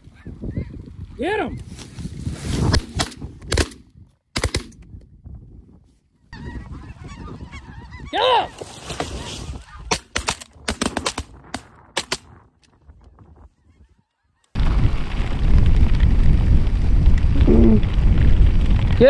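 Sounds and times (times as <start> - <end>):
shotgun shots: 4.4 - 4.8, 9.9 - 12.3
goose honk: 6.3 - 9.9
snow geese calling: 6.3 - 9.9.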